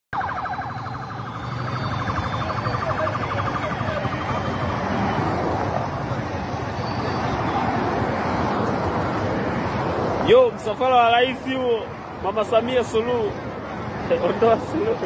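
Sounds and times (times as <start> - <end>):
fast warbling siren: 0.1 - 6.0
traffic rushing: 0.1 - 15.0.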